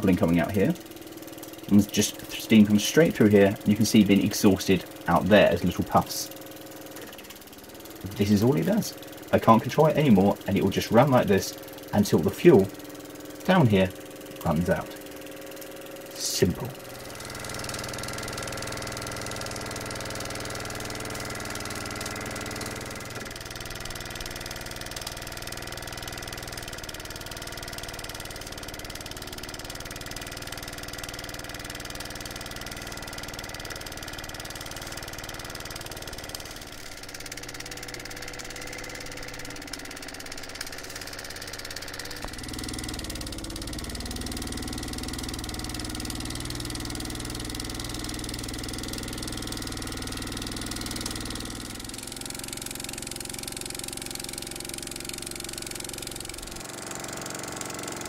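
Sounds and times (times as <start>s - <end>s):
toy steam engine whirring: 0.0s - 58.0s.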